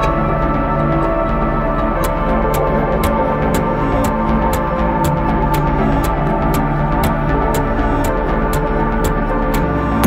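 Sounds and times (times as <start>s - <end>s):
music with held tones: 0.0s - 10.0s.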